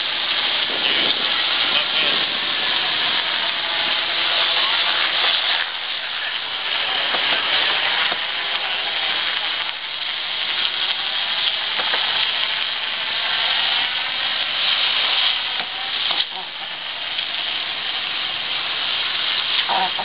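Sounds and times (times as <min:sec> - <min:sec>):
wind rushing: 0:00.0 - 0:05.9
water rushing past hull: 0:00.0 - 0:20.0.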